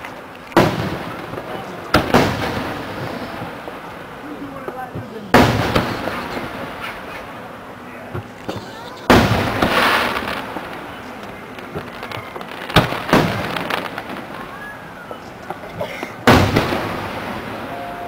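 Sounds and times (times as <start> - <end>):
fireworks booming: 0.0 - 18.0.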